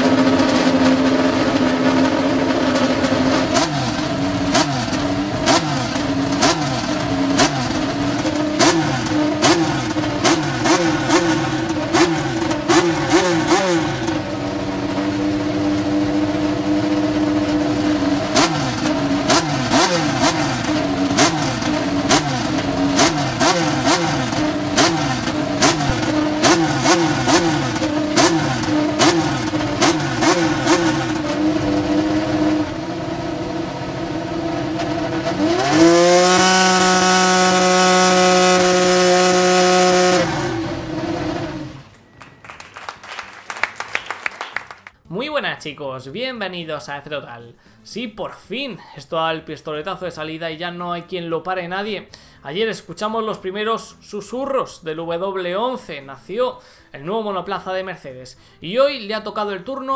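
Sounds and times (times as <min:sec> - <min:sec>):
racing car engine revving: 0:00.0 - 0:41.9.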